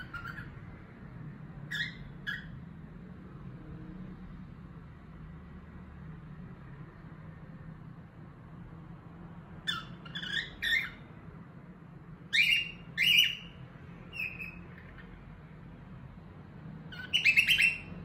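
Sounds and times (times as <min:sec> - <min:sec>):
cockatiel chirping: 0:00.0 - 0:00.6, 0:01.7 - 0:02.6, 0:09.6 - 0:11.1, 0:12.3 - 0:15.1, 0:16.9 - 0:18.0.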